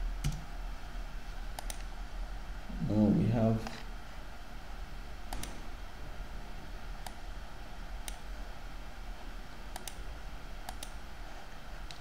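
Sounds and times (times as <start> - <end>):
low steady hum: 0.0 - 12.0
computer mouse clicking: 0.2 - 0.4, 1.5 - 1.9, 5.3 - 5.6, 7.0 - 7.2, 8.0 - 8.2, 9.7 - 10.0, 10.6 - 11.0.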